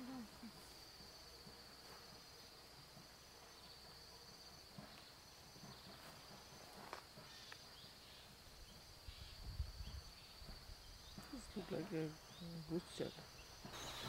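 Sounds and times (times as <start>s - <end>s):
high-pitched insect trill: 12.0s - 14.0s.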